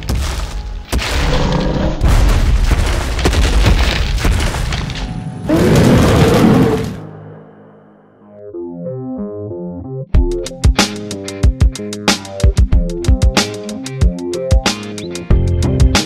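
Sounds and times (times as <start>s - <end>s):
dramatic music: 0.0s - 16.0s
deep booming footsteps: 2.0s - 4.9s
loud monster roar: 5.5s - 7.1s.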